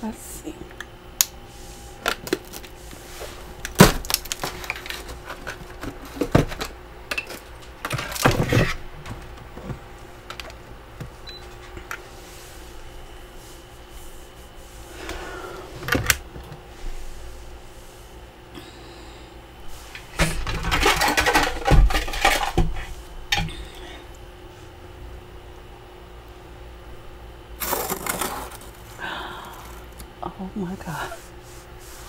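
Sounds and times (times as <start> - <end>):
plastic scraping ice: 27.6 - 30.0.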